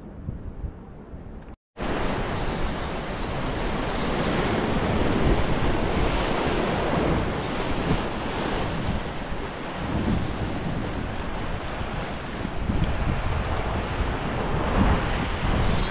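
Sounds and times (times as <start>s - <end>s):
sea surf washing over rocks: 3.0s - 15.9s.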